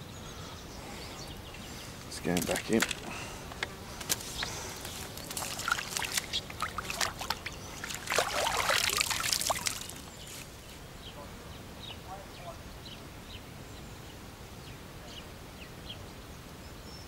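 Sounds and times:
water splashing and dripping: 0:02.2 - 0:03.2, 0:04.0 - 0:10.4.

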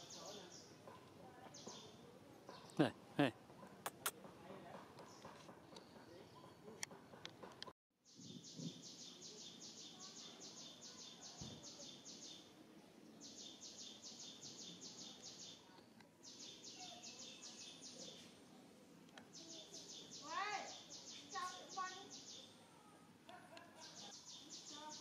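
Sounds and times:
forest ambience: 0:00.0 - 0:25.0.

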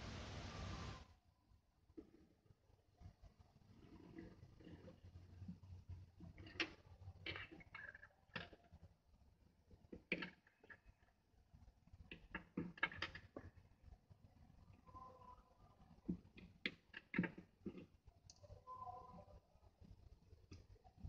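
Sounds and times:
clicks and taps handling board: 0:16.1 - 0:17.9.

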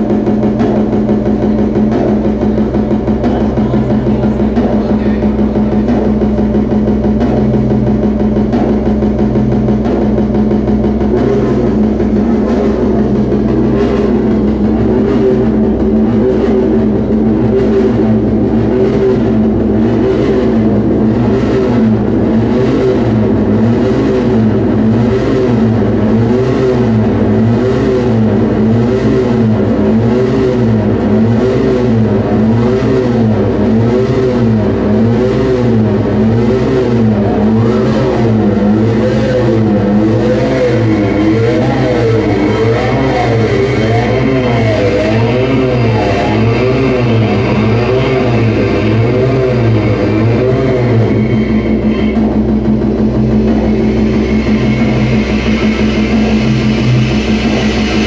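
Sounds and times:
industrial electronic music: 0:00.0 - 0:58.0
low wavering hum: 0:00.0 - 0:58.0
pulsing hiss: 0:35.6 - 0:58.0.

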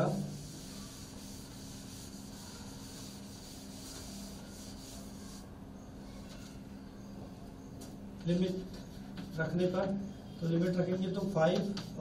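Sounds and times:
duster rubbing on chalkboard: 0:00.0 - 0:05.5, 0:08.4 - 0:09.9, 0:10.6 - 0:12.0.

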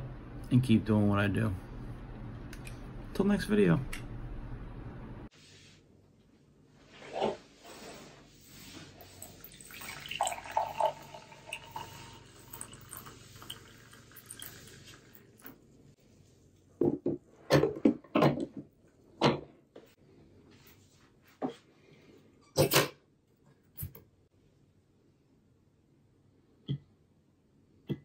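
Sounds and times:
coffee pouring into glass mug: 0:09.1 - 0:15.6.

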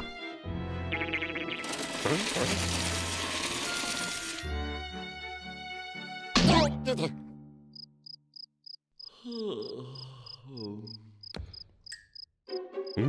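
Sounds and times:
crickets chirping: 0:07.8 - 0:13.0.

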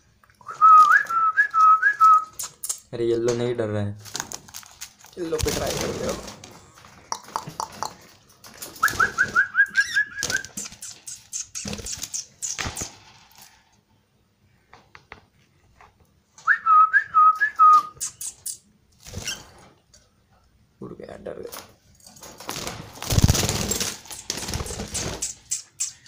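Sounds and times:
birds fluttering in a wire cage: 0:04.2 - 0:13.6, 0:18.3 - 0:19.8, 0:21.6 - 0:26.0
bird whistling: 0:08.8 - 0:12.6, 0:16.5 - 0:18.6, 0:25.2 - 0:26.0.

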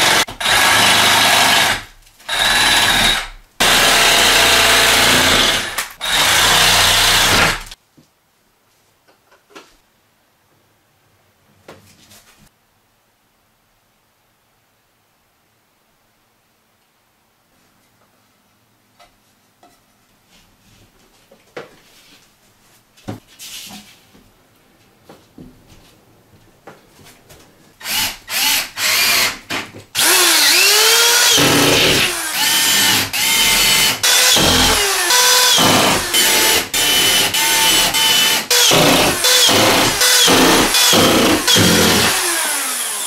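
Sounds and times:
power drill driving screws: 0:00.0 - 0:07.8, 0:27.8 - 0:43.0.

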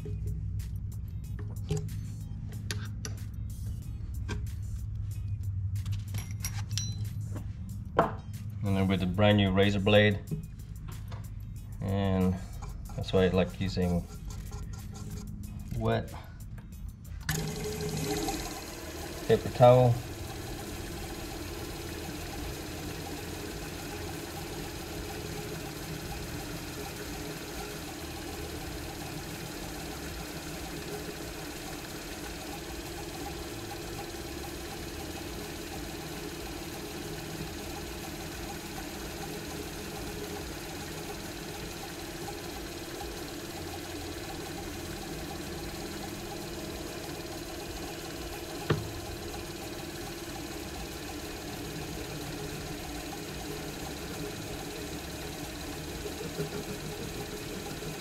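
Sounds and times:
lathe running: 0:17.2 - 0:58.0.

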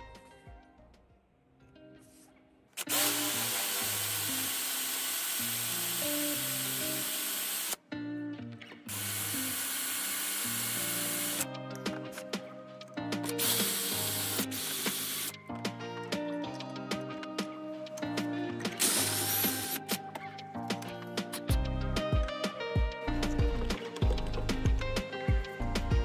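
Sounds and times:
background music: 0:00.0 - 0:26.0
power drill boring through metal: 0:02.8 - 0:07.8, 0:08.9 - 0:11.4, 0:13.4 - 0:15.3, 0:18.8 - 0:19.9.

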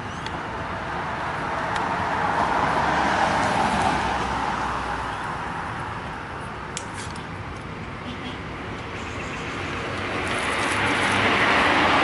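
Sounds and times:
vehicle passing by: 0:01.9 - 0:05.4, 0:09.2 - 0:12.0.

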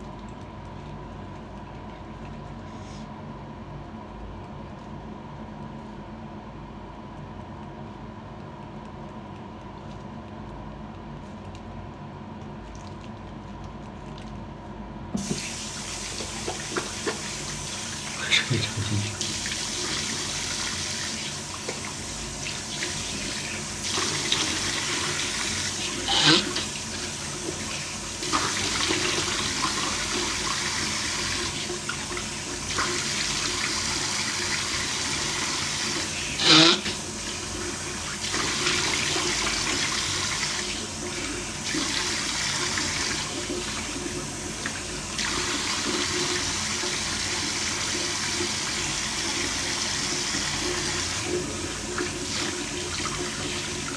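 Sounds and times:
tap water running into sink: 0:15.2 - 0:53.9.

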